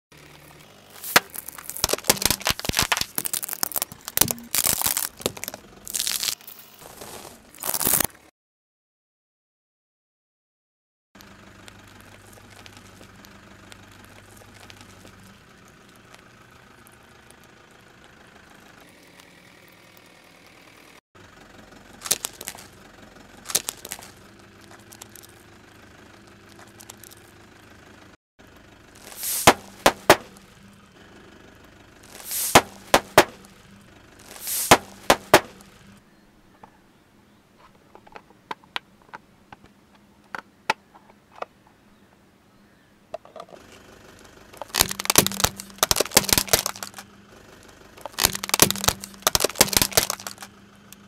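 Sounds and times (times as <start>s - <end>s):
tyre rolling over small objects: 0.2s - 8.1s, 23.5s - 25.4s, 29.0s - 30.4s, 32.0s - 33.4s, 34.2s - 35.6s, 48.0s - 50.5s
plastic cracking under tyre: 0.2s - 8.2s, 11.2s - 16.3s, 22.0s - 22.8s, 23.4s - 25.5s, 26.4s - 27.3s, 29.0s - 30.5s, 32.0s - 33.6s, 34.2s - 35.8s, 44.6s - 47.2s, 48.0s - 51.0s
plastic bags bursting with pops: 0.3s - 6.5s, 7.1s - 8.1s, 22.0s - 22.7s, 23.5s - 24.2s, 29.0s - 30.5s, 32.0s - 33.6s, 34.2s - 35.8s, 44.6s - 47.1s, 48.0s - 50.6s.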